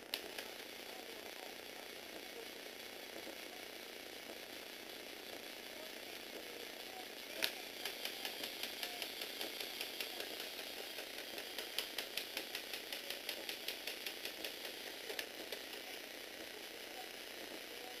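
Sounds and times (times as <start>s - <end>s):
small electric motor running: 0.0s - 18.0s
gears clicking: 4.2s - 18.0s.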